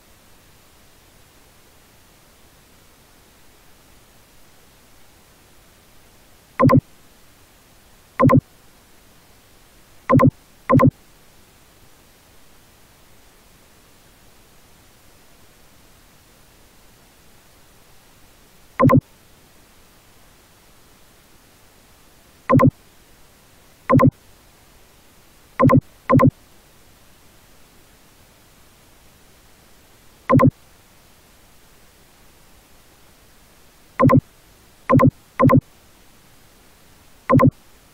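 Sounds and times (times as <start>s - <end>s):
steady low hiss: 0.0s - 37.9s
short electronic beeps: 6.6s - 6.8s, 8.2s - 8.4s, 10.1s - 10.9s, 18.8s - 19.0s, 22.5s - 22.7s, 23.9s - 24.1s, 25.6s - 26.3s, 30.3s - 30.5s, 34.0s - 34.2s, 34.9s - 35.6s, 37.3s - 37.5s.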